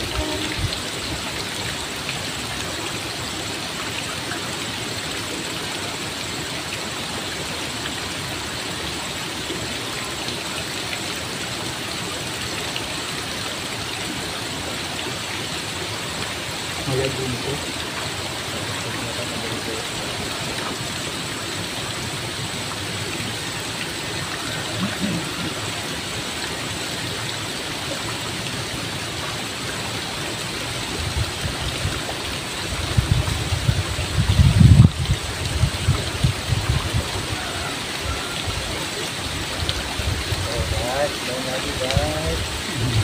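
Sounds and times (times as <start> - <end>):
stream water rushing: 0.0 - 43.0
low rumbling: 42.4 - 43.0.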